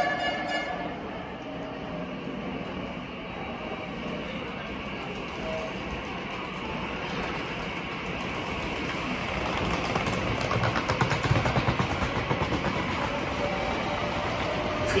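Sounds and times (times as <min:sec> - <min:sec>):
electric train running: 0:00.0 - 0:15.0
wheels clacking: 0:05.0 - 0:13.0.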